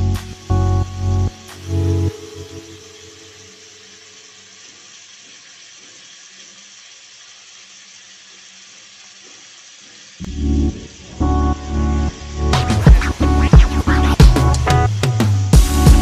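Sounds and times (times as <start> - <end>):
background music: 0.0 - 3.5, 10.3 - 16.0
mango pieces sizzling in a pot: 0.0 - 16.0.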